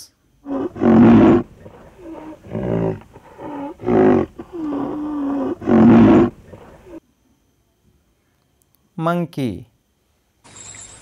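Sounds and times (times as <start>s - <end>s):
rhinoceros calling: 0.4s - 7.0s.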